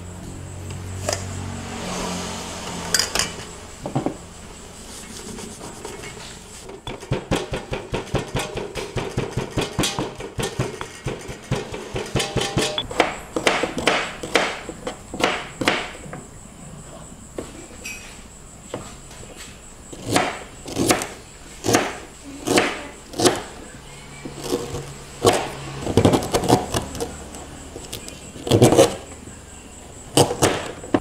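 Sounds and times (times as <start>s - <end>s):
kitchen utensil knocking: 6.8s - 14.6s.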